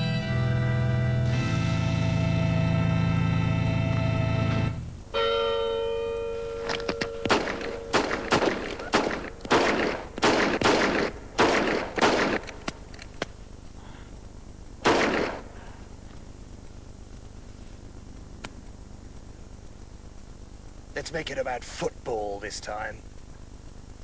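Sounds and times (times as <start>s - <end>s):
held musical chord: 0.0s - 7.9s
bell ringing: 5.2s - 7.9s
pistol shots: 6.7s - 12.8s, 14.8s - 15.6s.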